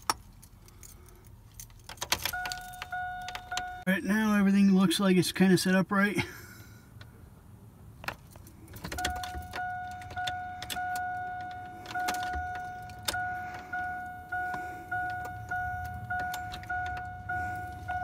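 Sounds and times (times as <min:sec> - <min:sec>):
key clicking in ignition: 0:00.0 - 0:03.8, 0:08.1 - 0:18.0
dashboard warning chime dinging: 0:02.1 - 0:04.4, 0:08.8 - 0:18.0.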